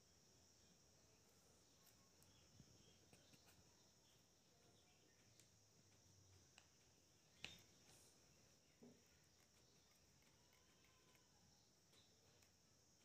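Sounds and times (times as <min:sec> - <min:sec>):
faint high-pitched hiss: 0:00.0 - 0:13.0.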